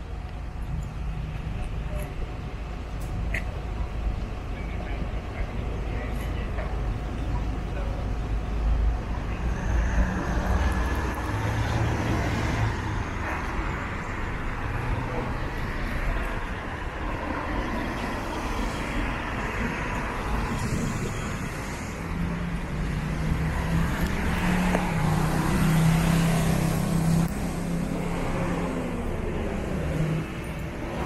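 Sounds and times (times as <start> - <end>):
vehicles passing: 0.0 - 31.0.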